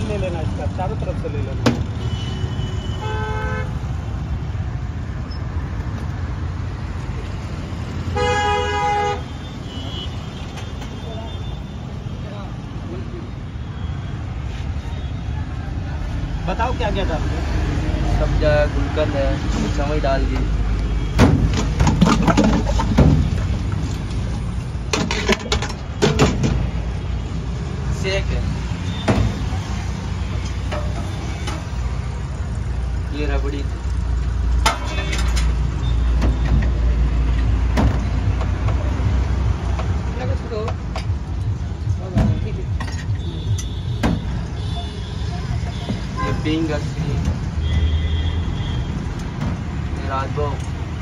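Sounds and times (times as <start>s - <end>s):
low traffic rumble: 0.0s - 51.0s
vehicle horn honking: 2.0s - 3.8s, 8.2s - 10.2s, 47.6s - 49.0s.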